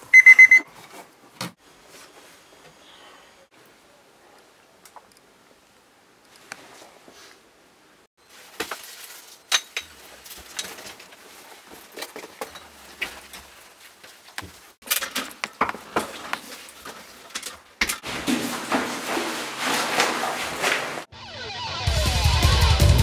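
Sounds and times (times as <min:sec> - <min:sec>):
rustling: 0:08.2 - 0:21.1.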